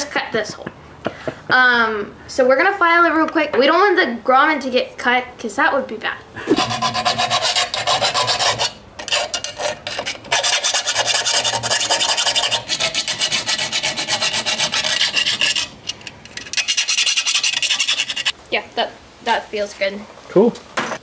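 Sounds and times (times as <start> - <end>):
hand file rasping: 6.5 - 18.3.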